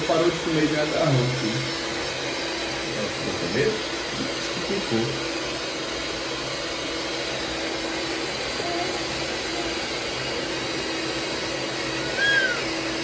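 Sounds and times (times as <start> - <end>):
appliance motor whirring: 0.0 - 13.0.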